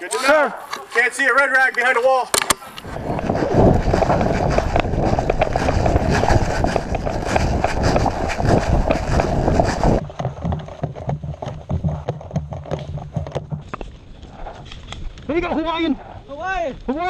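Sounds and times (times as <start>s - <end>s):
quiet footsteps: 0.0s - 17.0s
running footsteps on dirt: 2.8s - 15.4s.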